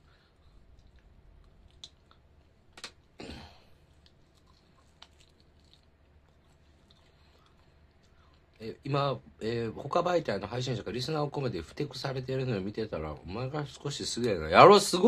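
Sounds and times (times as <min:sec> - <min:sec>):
man chewing food: 0:00.0 - 0:08.6.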